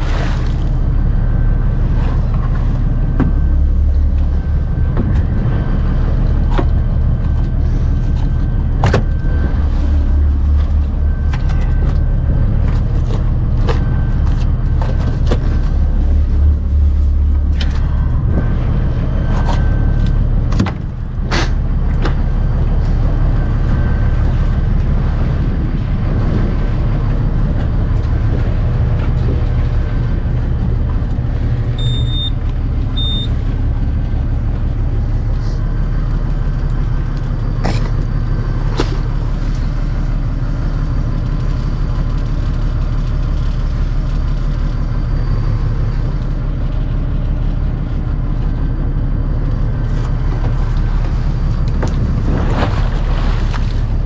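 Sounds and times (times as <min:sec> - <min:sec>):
boat engine drone: 0:00.0 - 0:54.0
short high beeps: 0:31.8 - 0:32.4, 0:33.0 - 0:33.4.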